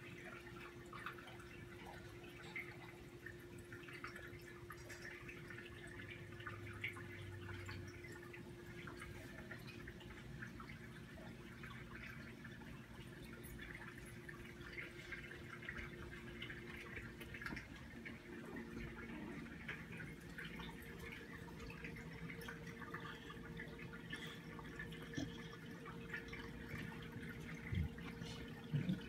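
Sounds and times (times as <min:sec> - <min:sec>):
steady low hum: 0:00.0 - 0:29.0
water trickling and dripping: 0:00.0 - 0:29.0.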